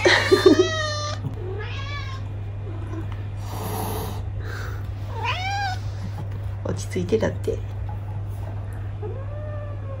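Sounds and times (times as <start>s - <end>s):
cat meowing: 0.6s - 2.3s, 5.1s - 5.8s.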